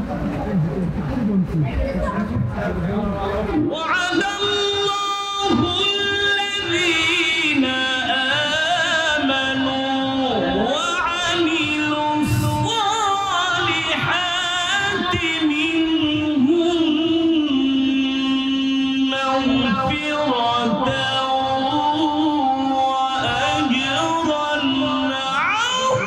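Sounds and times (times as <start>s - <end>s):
man reciting in melodic chant: 2.7s - 26.0s.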